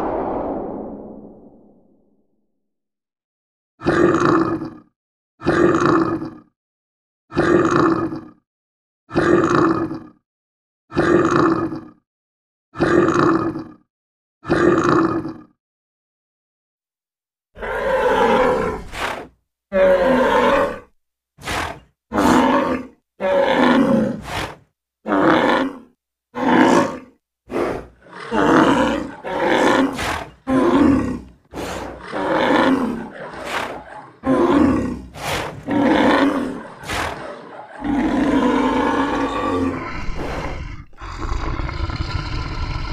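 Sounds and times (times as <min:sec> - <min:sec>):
big cat growling and roaring: 0:03.8 - 0:06.5, 0:07.3 - 0:08.4, 0:09.1 - 0:10.2, 0:10.9 - 0:12.0, 0:12.8 - 0:15.6, 0:17.6 - 0:42.9.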